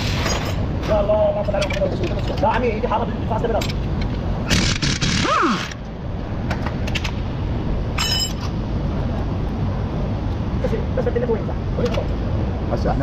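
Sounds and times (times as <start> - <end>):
impact wrench whine: 4.4 - 5.8
bright metallic clink: 8.0 - 8.5.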